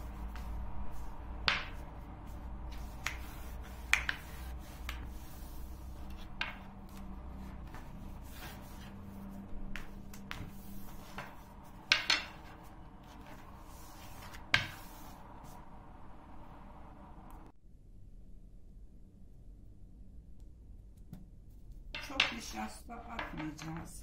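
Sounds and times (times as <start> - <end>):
rolling pin rubbing dough: 0.0 - 15.7, 22.0 - 24.0
rolling pin knocking table: 1.4 - 1.9, 6.1 - 6.8, 9.7 - 13.4, 22.0 - 24.0.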